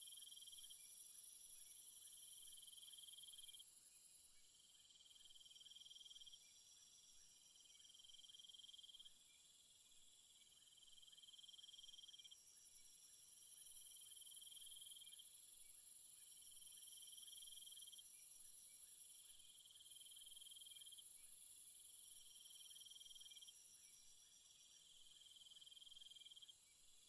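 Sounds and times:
insects trilling: 0:13.4 - 0:26.6.

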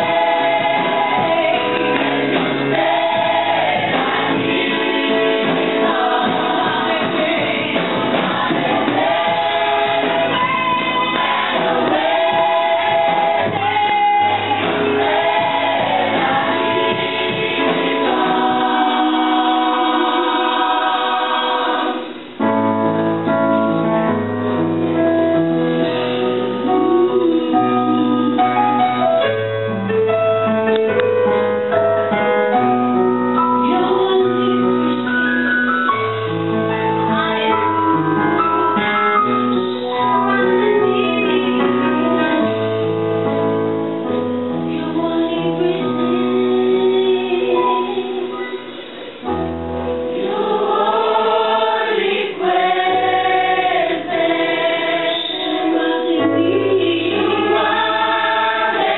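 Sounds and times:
choir singing a hymn: 0:00.0 - 0:22.4, 0:44.7 - 0:58.9.

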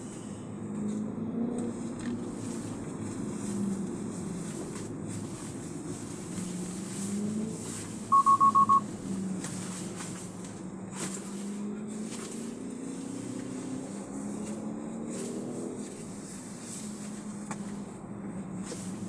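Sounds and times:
car engine and road noise: 0:00.0 - 0:19.0
quick electronic beeps: 0:08.1 - 0:08.8.

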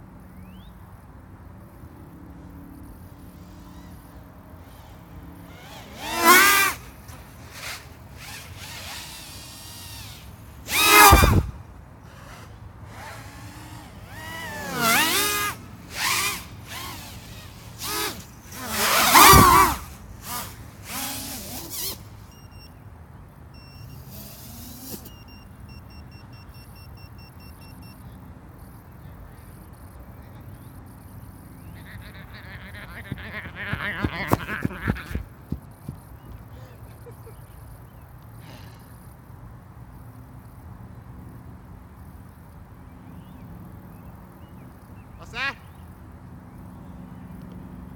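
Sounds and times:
faint steady background noise: 0:00.0 - 0:47.9
drone motors and propellers whining: 0:02.4 - 0:22.6.

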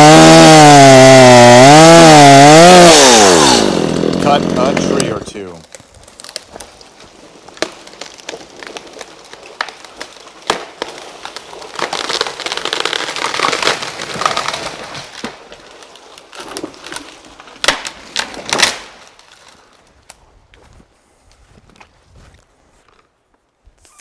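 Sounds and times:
tree crashing through branches: 0:00.0 - 0:19.4
tree trunk cracking and snapping: 0:00.0 - 0:20.7
twigs breaking: 0:04.1 - 0:20.7.

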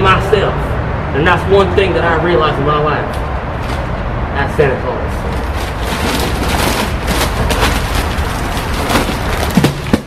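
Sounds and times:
wrapping paper crinkling: 0:05.3 - 0:10.0.

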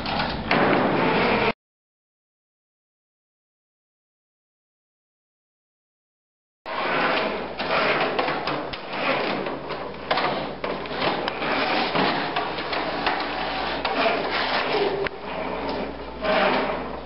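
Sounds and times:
robot motors and mechanism clattering: 0:00.0 - 0:01.5.

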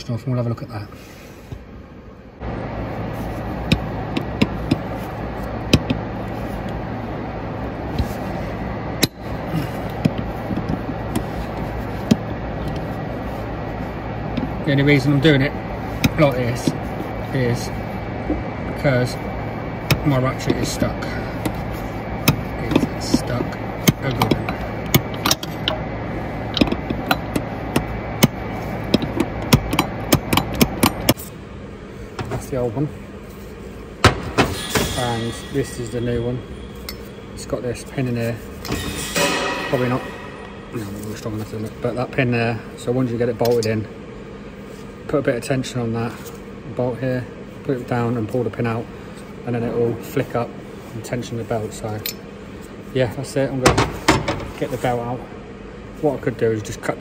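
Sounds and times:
steady hum: 0:00.0 - 0:57.0
spanner clicking on metal: 0:23.8 - 0:25.8, 0:26.5 - 0:31.2.

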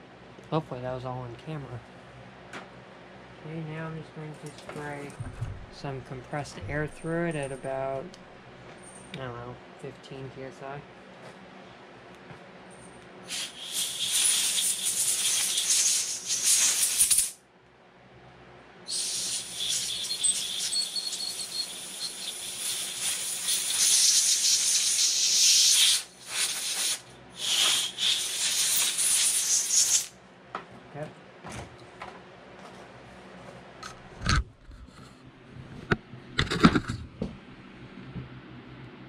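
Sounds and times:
compressed air blow gun hissing: 0:13.3 - 0:17.4, 0:18.9 - 0:30.1.

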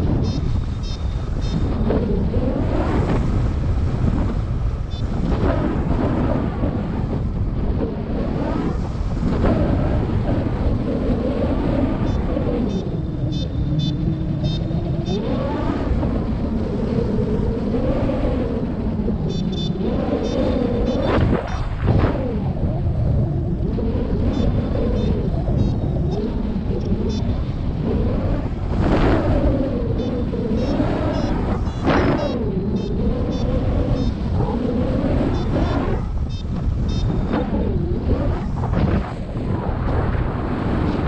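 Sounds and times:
hum rising and falling: 0:00.0 - 0:41.0
wind rushing over microphone: 0:00.0 - 0:41.0
rapid high beeps: 0:00.2 - 0:01.6, 0:19.3 - 0:21.1, 0:36.3 - 0:37.3.

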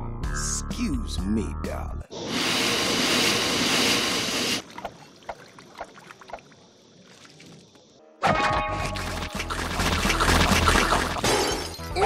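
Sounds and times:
loud rushing hiss: 0:02.1 - 0:04.6.

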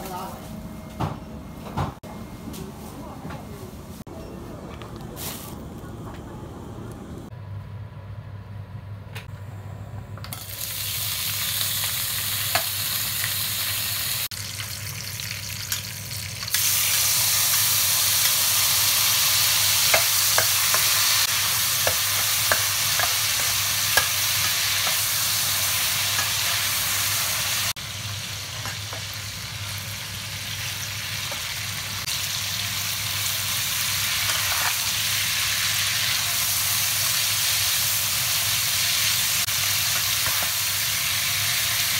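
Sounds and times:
oil sizzling in a wok: 0:10.3 - 0:41.9.

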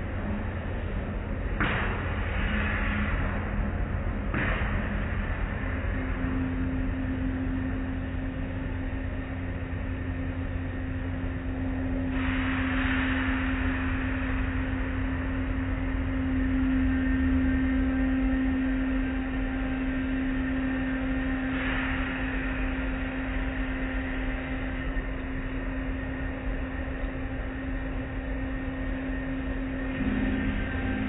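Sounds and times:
car wash machinery hum: 0:00.0 - 0:31.0.

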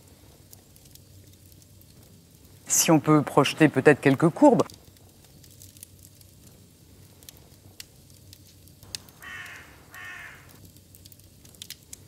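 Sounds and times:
crow cawing: 0:09.0 - 0:10.6.

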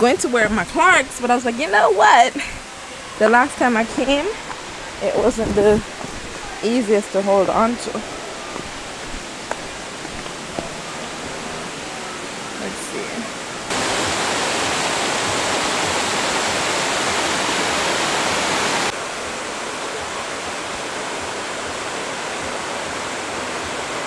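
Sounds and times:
rushing water cascade: 0:00.0 - 0:24.0.

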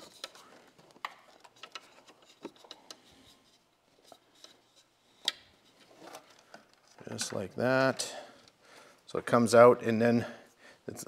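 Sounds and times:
wire handling clicks and rubbing: 0:00.0 - 0:08.6.

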